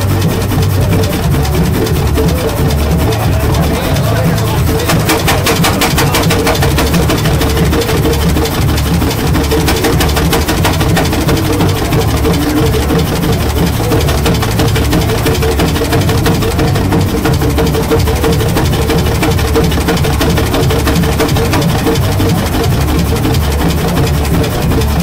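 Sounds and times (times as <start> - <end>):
tractor engine idling: 0.0 - 25.0.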